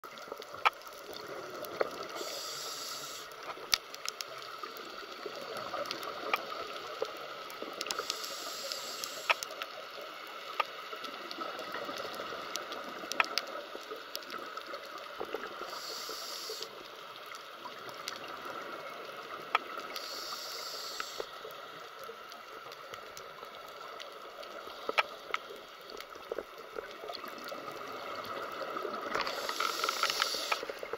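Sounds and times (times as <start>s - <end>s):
steady underwater background: 0.0s - 30.9s
regulator bubbling hiss: 1.2s - 3.6s, 4.5s - 10.3s, 15.4s - 17.1s, 19.2s - 21.8s, 26.9s - 30.9s.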